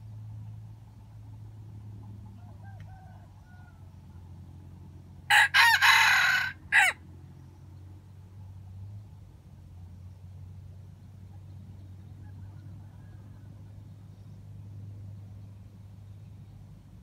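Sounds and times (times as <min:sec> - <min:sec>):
rooster crowing: 0:02.4 - 0:03.9, 0:05.3 - 0:07.0.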